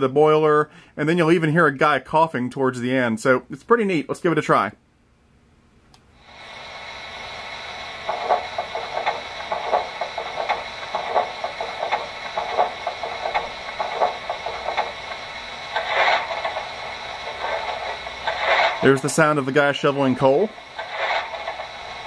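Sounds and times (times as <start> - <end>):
steam hiss with regular strokes: 6.2 - 22.0
coal shoveling scrapes: 17.2 - 19.3.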